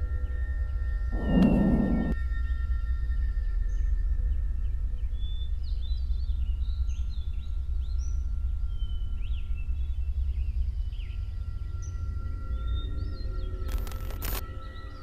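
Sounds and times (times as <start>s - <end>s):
wind rumble on microphone: 1.1s - 2.2s
birds chirping and singing: 1.2s - 2.2s.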